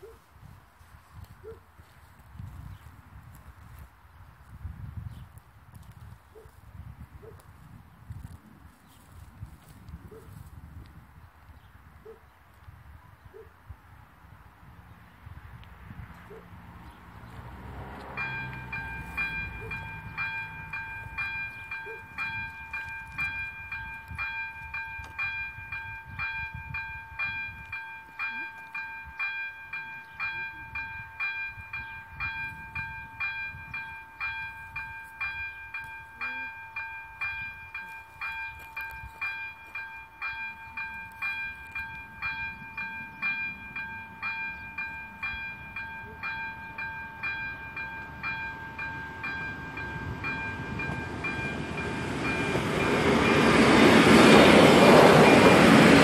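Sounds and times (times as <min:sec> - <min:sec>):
level crossing bell ringing: 0:17.7 - 0:56.0.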